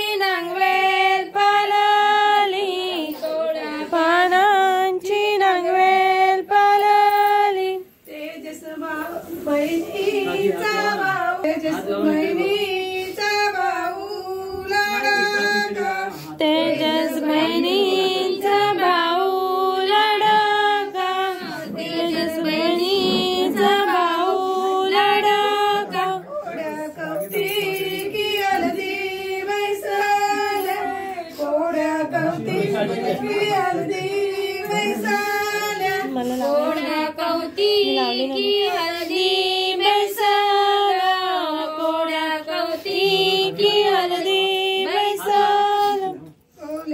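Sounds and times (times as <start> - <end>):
women singing: 0.0 - 46.9.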